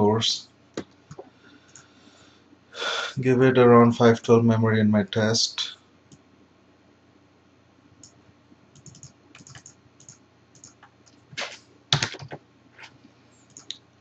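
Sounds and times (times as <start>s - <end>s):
keyboard typing: 8.0s - 12.4s, 13.5s - 13.7s.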